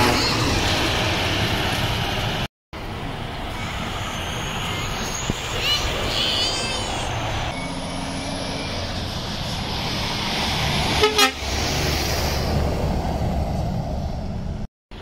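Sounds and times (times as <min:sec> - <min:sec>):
lorries driving past: 0:00.0 - 0:15.0
lorry horn toot: 0:11.0 - 0:11.4.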